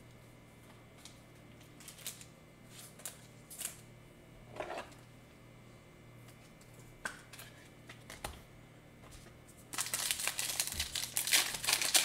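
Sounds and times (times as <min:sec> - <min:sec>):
wrapper crinkling torn open: 0:01.8 - 0:03.8, 0:09.7 - 0:12.0.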